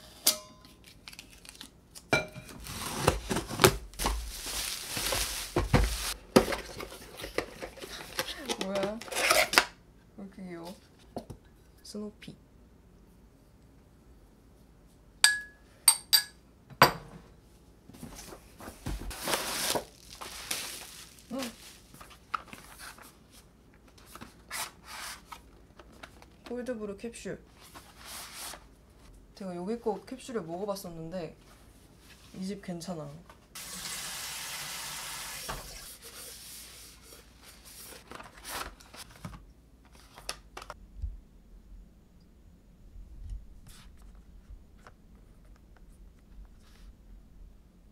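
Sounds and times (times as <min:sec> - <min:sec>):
bubble-wrap mailer crinkling: 0:00.8 - 0:01.8, 0:02.6 - 0:07.0, 0:19.1 - 0:23.4
packaging rustling: 0:00.8 - 0:01.8, 0:02.6 - 0:09.6, 0:19.1 - 0:26.4, 0:37.6 - 0:40.8
spoon clinking against mug: 0:15.2 - 0:16.4.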